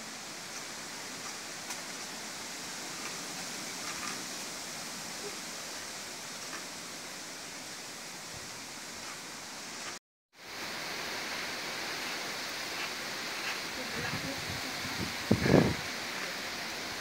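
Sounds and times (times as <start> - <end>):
strong wind through trees: 0.0 - 17.0.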